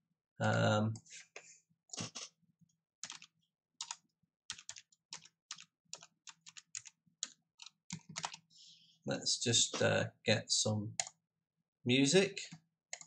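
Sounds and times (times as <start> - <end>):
computer keyboard typing: 3.0 - 8.5, 10.9 - 11.2.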